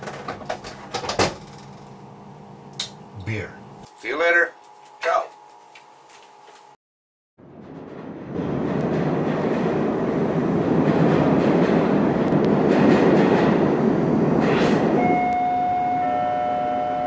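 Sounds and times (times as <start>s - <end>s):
train rumbling past: 7.4s - 17.0s.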